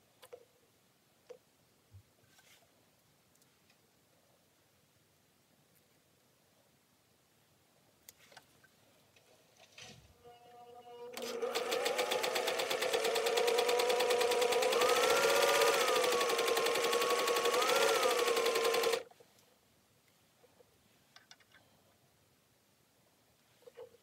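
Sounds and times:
sewing machine stitching: 11.2 - 19.1.

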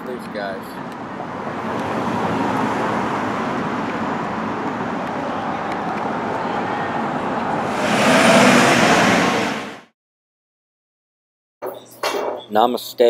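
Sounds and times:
city street traffic: 0.0 - 9.9
tow truck driving past: 0.6 - 9.9.

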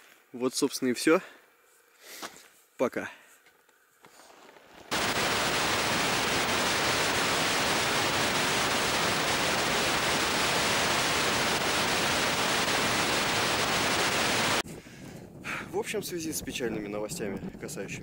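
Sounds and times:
television static hiss: 4.9 - 14.6.

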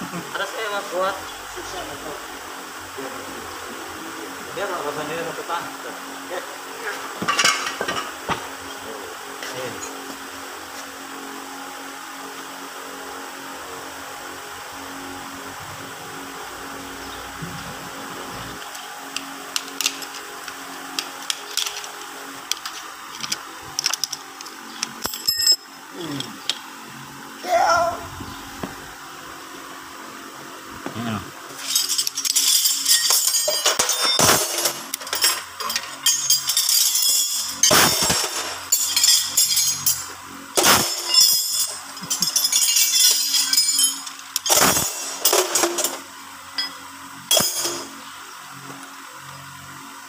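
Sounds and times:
screwdriver clicking on metal gears: 18.7 - 25.6
ringing metal clink: 25.1 - 25.7, 38.7 - 40.1, 40.7 - 45.1, 46.6 - 47.9.

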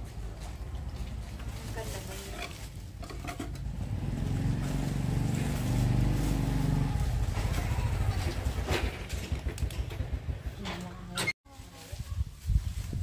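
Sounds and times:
vehicle engine running: 0.2 - 10.6.

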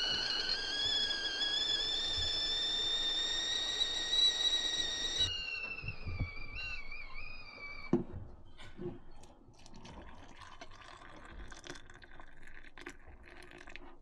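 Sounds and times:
kettle whistling: 0.0 - 9.1.

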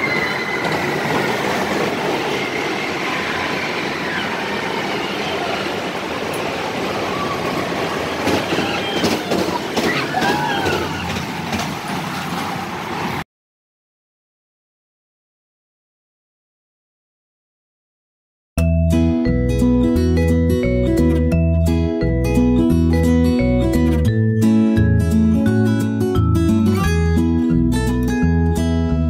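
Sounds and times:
high squeals: 0.0 - 6.0
ride wheels rumbling on rail: 0.0 - 13.2.

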